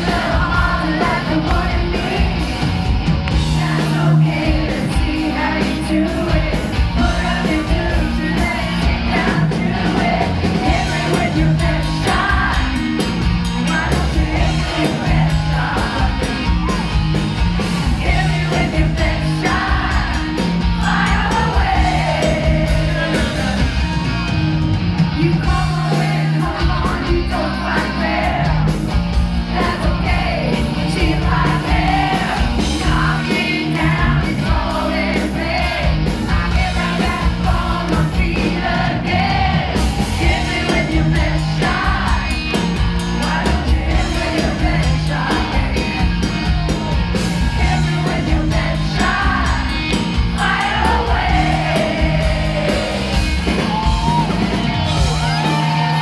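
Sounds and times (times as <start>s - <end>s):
woman singing lead: 0.0s - 2.8s, 3.4s - 17.0s, 17.8s - 24.0s, 25.1s - 28.8s, 29.5s - 46.2s
rock band playing: 0.0s - 56.0s.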